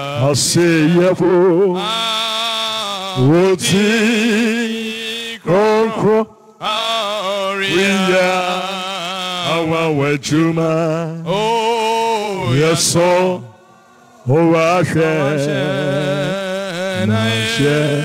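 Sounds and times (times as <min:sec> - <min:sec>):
man singing a chant: 0:00.0 - 0:18.0
singer breathing: 0:13.5 - 0:14.3.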